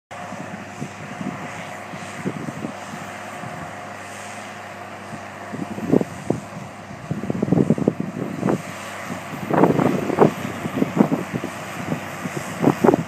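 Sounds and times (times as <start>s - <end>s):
low rumbles: 0.1s - 13.0s
tractor engine under load: 0.1s - 13.0s.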